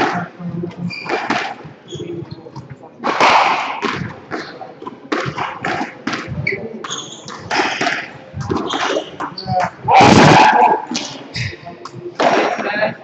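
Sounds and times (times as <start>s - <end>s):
shoes squeaking on wooden floor: 0.0s - 11.6s
squash ball hits: 1.0s - 1.7s, 3.0s - 11.2s, 12.2s - 12.7s.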